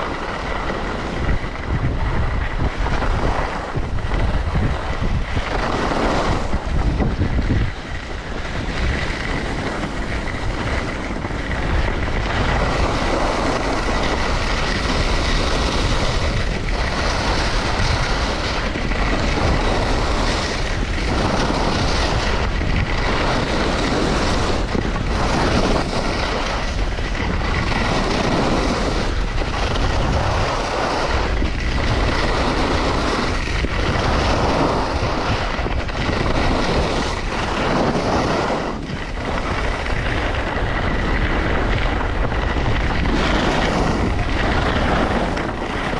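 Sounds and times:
skis scraping on hard snow: 0.0 - 45.9
wind rushing over microphone: 0.0 - 45.9.

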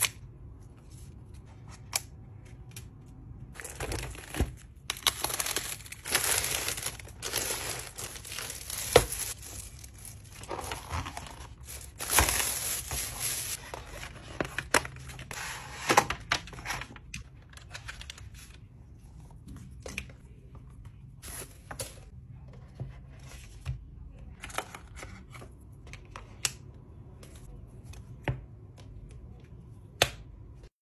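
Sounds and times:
packaging tearing and crinkling: 3.6 - 13.6.

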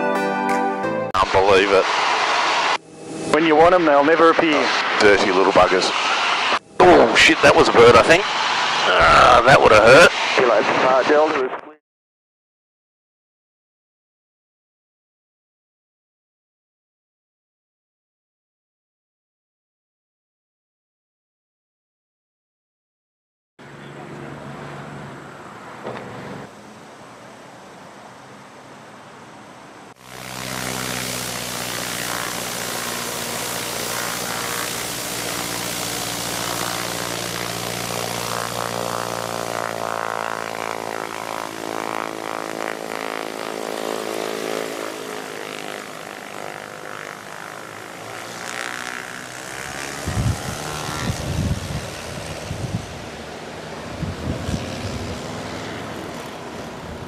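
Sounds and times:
propeller plane engine drone: 1.2 - 11.5, 23.6 - 57.0.

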